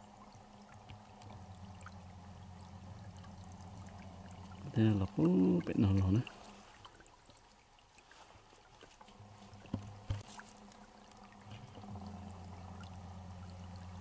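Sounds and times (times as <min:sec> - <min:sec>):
creek trickling over stones: 0:00.0 - 0:14.0
low steady hum: 0:00.0 - 0:14.0
soft knocks: 0:09.7 - 0:10.3.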